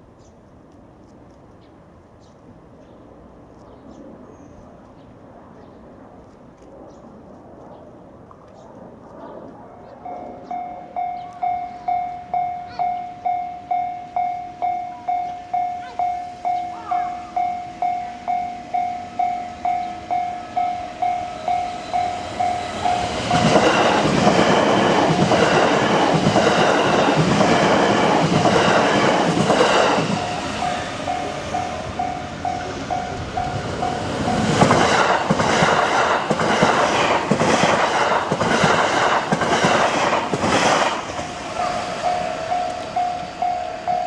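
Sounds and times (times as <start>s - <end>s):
level crossing bell ringing: 10.1s - 23.6s, 30.1s - 34.5s, 41.6s - 44.0s
train wheels clattering: 19.2s - 44.0s.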